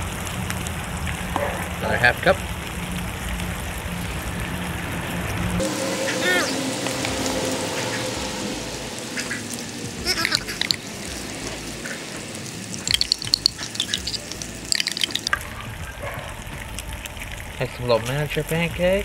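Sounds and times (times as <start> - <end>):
food sizzling on griddle: 5.5 - 15.4
short high chirps: 12.9 - 15.4.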